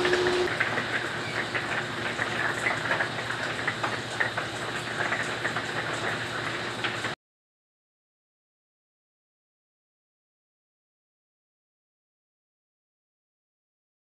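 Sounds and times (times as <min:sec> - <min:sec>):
raindrops pattering: 0:00.5 - 0:07.2.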